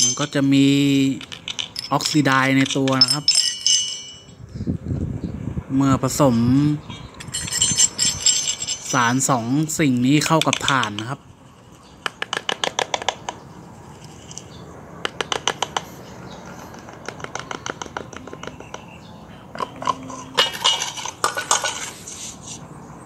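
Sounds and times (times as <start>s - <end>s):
plastic cup clicking and tapping: 12.0s - 13.4s, 15.0s - 15.9s, 16.8s - 18.9s.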